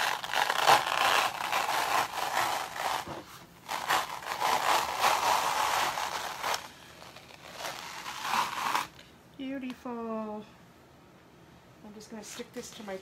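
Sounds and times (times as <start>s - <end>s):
sticky transfer peeling off: 0.0s - 9.0s.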